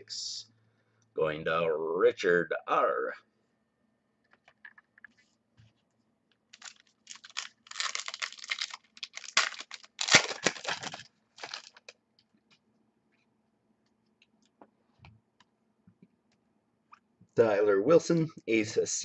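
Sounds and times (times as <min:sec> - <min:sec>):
plastic wrapper tearing and crinkling: 0:06.5 - 0:12.0.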